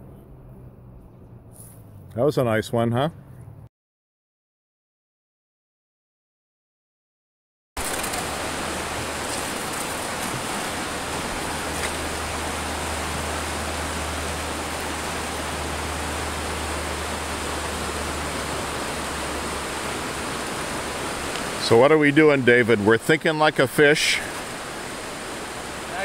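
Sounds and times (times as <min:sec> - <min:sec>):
shallow river rushing: 0:07.8 - 0:26.0.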